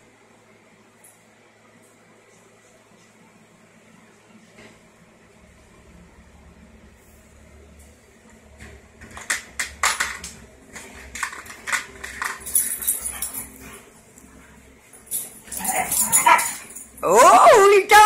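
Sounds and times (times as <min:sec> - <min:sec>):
dogs growling and barking: 0:10.8 - 0:17.1.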